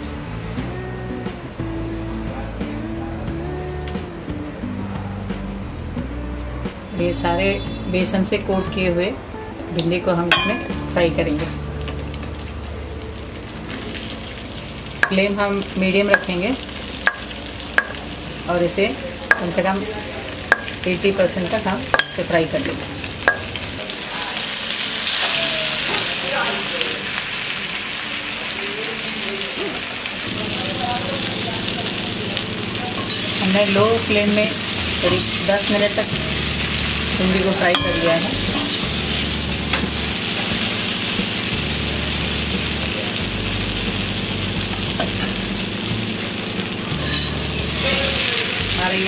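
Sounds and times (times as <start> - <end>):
vegetables sizzling in hot oil: 9.8 - 49.0.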